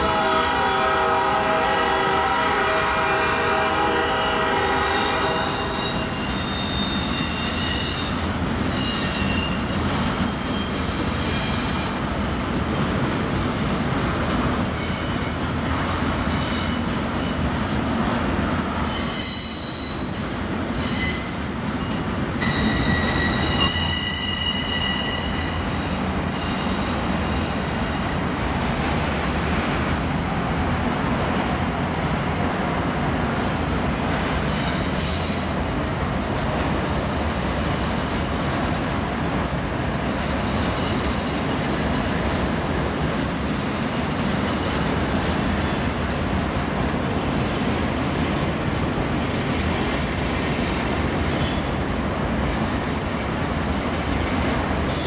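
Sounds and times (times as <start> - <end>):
train wheels rumbling on rail: 0.0 - 55.0
high-pitched wheel squeal: 4.9 - 9.6, 18.7 - 20.1, 20.8 - 21.4, 22.4 - 25.7.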